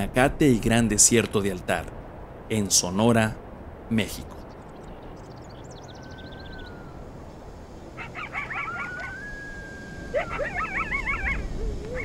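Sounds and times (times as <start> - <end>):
animal yelping: 8.0 - 12.0
long held animal call: 8.0 - 12.0.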